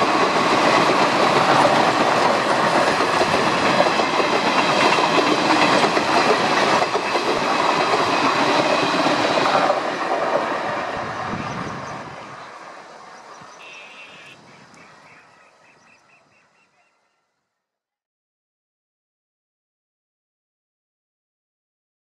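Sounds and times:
train wheels clattering over rails: 0:00.0 - 0:14.2.

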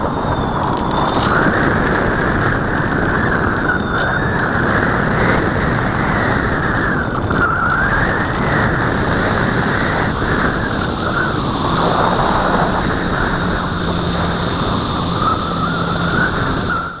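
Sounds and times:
faint motor tone: 0:08.6 - 0:17.0.

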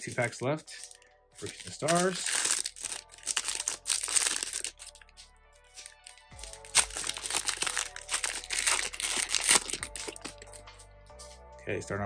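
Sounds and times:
soft background music: 0:00.0 - 0:12.0
foil wrapper crinkling: 0:00.8 - 0:05.0, 0:05.8 - 0:10.6.

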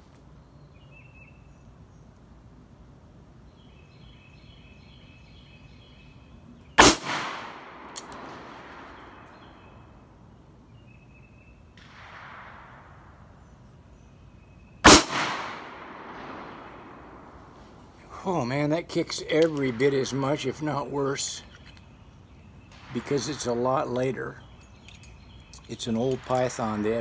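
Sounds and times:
birds chirping faintly: 0:00.0 - 0:27.0
revolver shots with echo: 0:06.8 - 0:09.5, 0:14.8 - 0:17.5.

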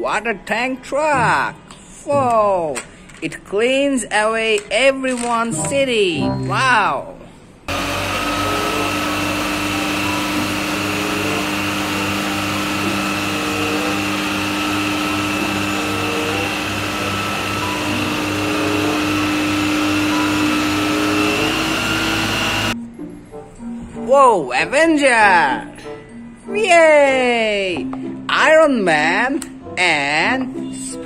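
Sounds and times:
diesel truck engine droning: 0:07.7 - 0:22.8.

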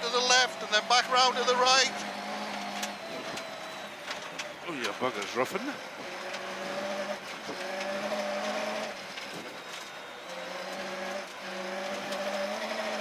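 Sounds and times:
rally car engine running hard: 0:00.0 - 0:13.0.

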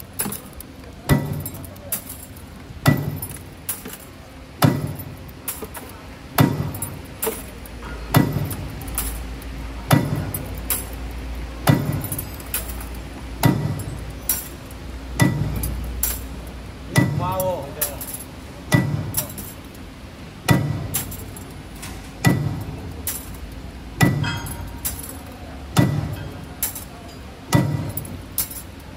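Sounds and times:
low machine hum: 0:00.0 - 0:28.9
light clicks and clinks: 0:00.1 - 0:04.2, 0:06.6 - 0:16.4, 0:17.4 - 0:19.8, 0:21.0 - 0:28.9
loud metallic strikes: 0:01.1 - 0:02.2, 0:02.8 - 0:04.0, 0:04.6 - 0:05.7, 0:06.4 - 0:07.4, 0:08.1 - 0:09.2, 0:09.9 - 0:11.0, 0:11.6 - 0:16.3, 0:16.9 - 0:19.5, 0:20.4 - 0:21.4, 0:22.2 - 0:23.4, 0:24.0 - 0:25.1, 0:25.7 - 0:26.9, 0:27.5 - 0:28.6.

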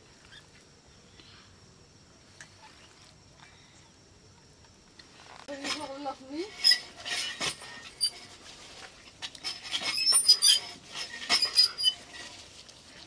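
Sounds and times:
short high squeaks: 0:06.5 - 0:08.3, 0:09.4 - 0:12.4.

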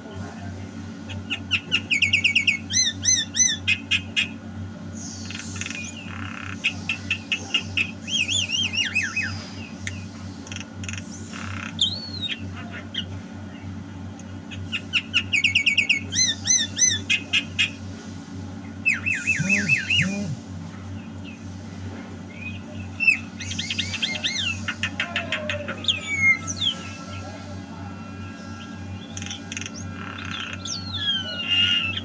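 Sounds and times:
steady low hum: 0:00.0 - 0:32.0
bird singing whistled notes: 0:18.8 - 0:20.2, 0:22.3 - 0:24.6.

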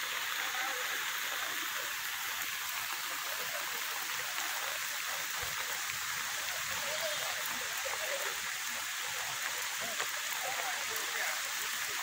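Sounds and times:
floodwater rushing: 0:00.0 - 0:12.0
rain falling on river: 0:00.0 - 0:12.0.

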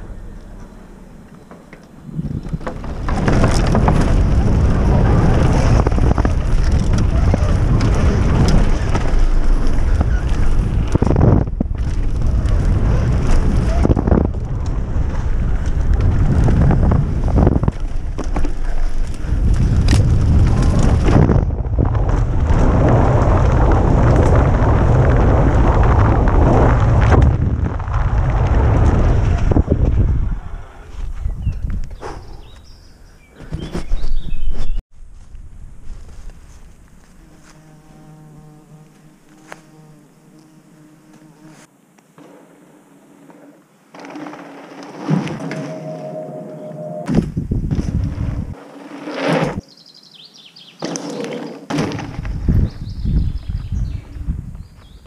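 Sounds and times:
tyres rolling over dirt: 0:00.0 - 0:30.1, 0:43.4 - 0:49.6
bike rattling over bumps: 0:00.0 - 0:30.3, 0:43.3 - 0:46.3, 0:47.1 - 0:49.6, 0:50.8 - 0:55.0
wind blasting over microphone: 0:02.0 - 0:32.6, 0:45.7 - 0:48.6, 0:52.0 - 0:55.0.

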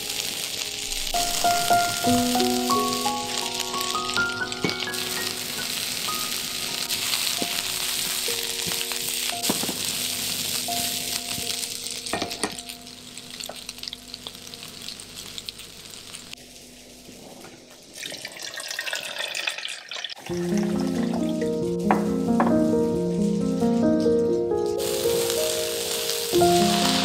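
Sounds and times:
soft background music: 0:00.0 - 0:15.0, 0:20.2 - 0:27.0
food sizzling in a frying pan: 0:00.0 - 0:27.0
water pouring into plastic jug: 0:18.0 - 0:20.8.

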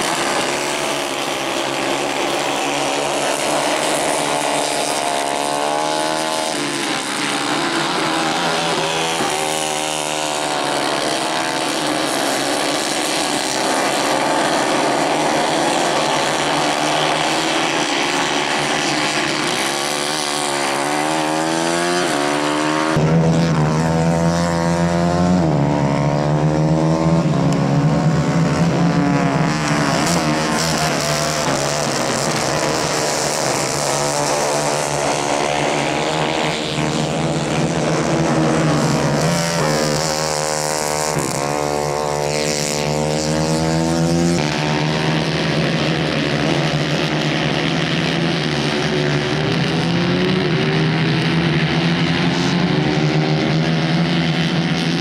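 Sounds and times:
racing kart engines: 0:00.0 - 0:55.0
deep engine drone: 0:22.9 - 0:55.0.

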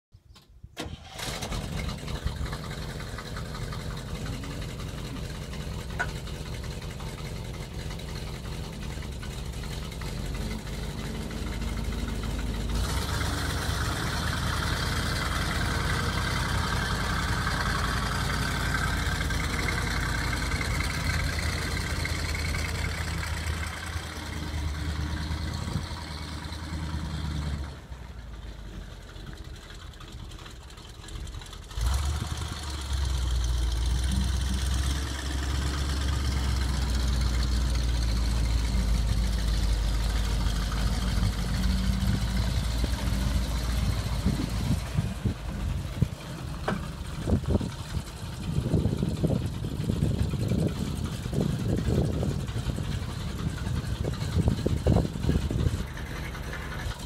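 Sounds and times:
truck engine running: 0:00.8 - 0:57.0.

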